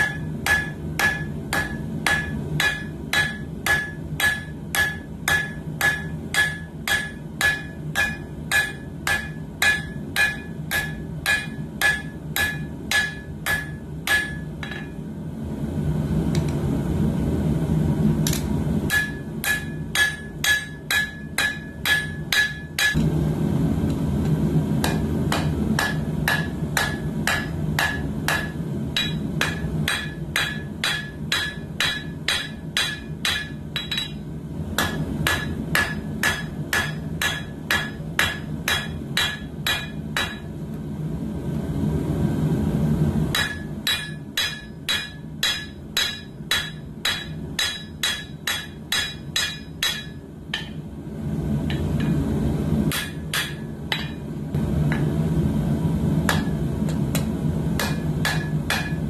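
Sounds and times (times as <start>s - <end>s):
hammer striking steel on anvil: 0.0s - 15.0s, 18.3s - 23.1s, 24.8s - 40.6s, 43.3s - 50.9s, 52.9s - 54.3s, 54.9s - 55.2s, 56.3s - 59.0s.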